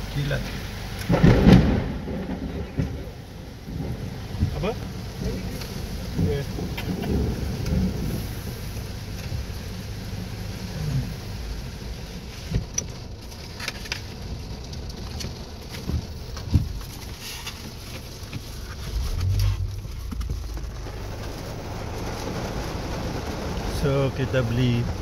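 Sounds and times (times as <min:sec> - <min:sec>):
low rumble in car: 0:00.0 - 0:25.0
louder low rumble: 0:18.5 - 0:25.0.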